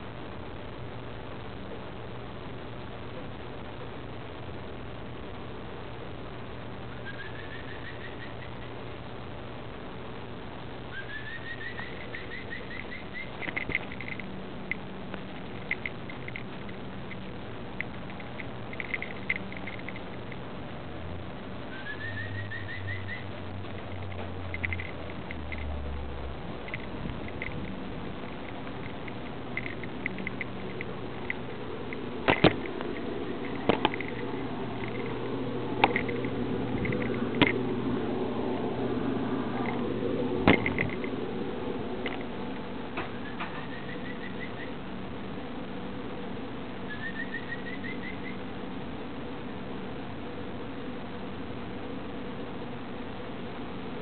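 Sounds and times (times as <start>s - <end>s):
background hiss and hum: 0.0s - 54.0s
bird singing whistled notes: 7.0s - 8.6s, 10.9s - 13.4s, 21.7s - 23.4s, 43.1s - 44.8s, 46.9s - 48.4s
sharp bird chirps and clicks: 7.0s - 8.7s, 10.9s - 20.4s, 21.7s - 25.7s, 26.6s - 35.2s, 43.0s - 44.8s, 46.9s - 48.4s.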